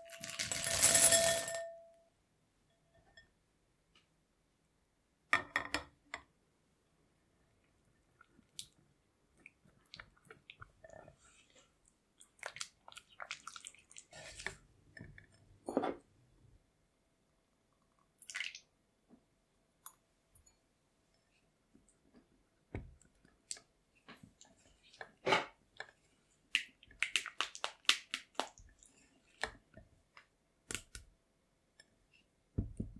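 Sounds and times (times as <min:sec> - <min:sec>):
spatula squishing and scraping chocolate: 0:09.4 - 0:15.2, 0:22.8 - 0:31.1.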